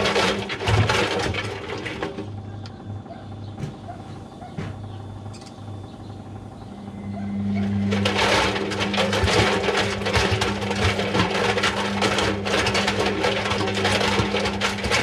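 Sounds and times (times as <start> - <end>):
water balloons tumbling and sloshing: 0.0 - 2.3, 7.8 - 15.0
washing machine motor hum: 0.0 - 15.0.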